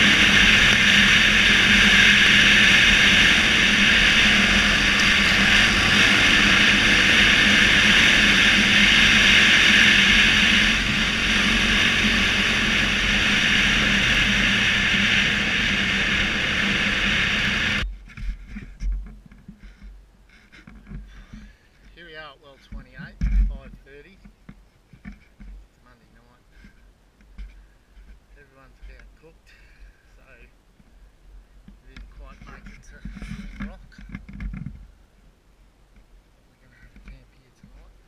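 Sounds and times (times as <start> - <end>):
motorbike engine running: 0.0 - 18.1
wind rush on microphone: 0.0 - 19.8, 31.8 - 35.0.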